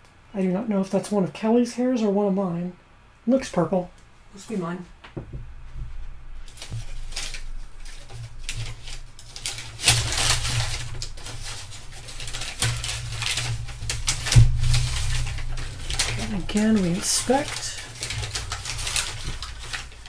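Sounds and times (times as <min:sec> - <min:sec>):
steady low hum: 0:00.0 - 0:20.0
packing paper crinkling: 0:06.2 - 0:20.0.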